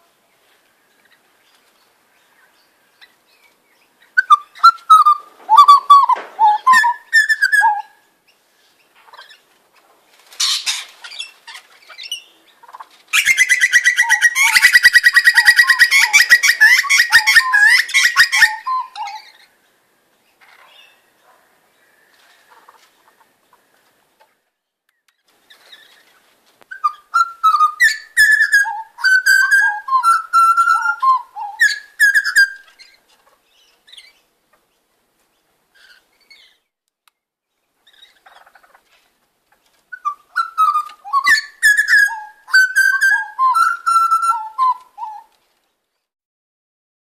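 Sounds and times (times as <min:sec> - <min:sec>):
birds singing sliding notes: 0:00.4 - 0:09.4, 0:13.2 - 0:19.6, 0:40.0 - 0:45.3.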